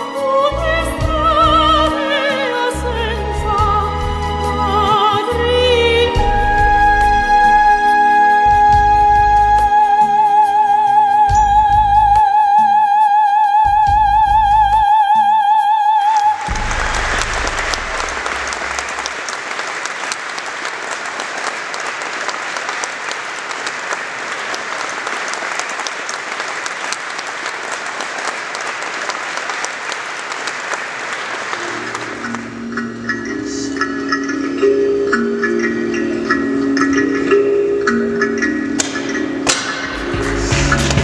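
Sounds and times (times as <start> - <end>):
audience applause: 16.2 - 32.8
music with held vibrato note: 16.4 - 19.2
plucked or mallet-like notes: 32.1 - 41.0.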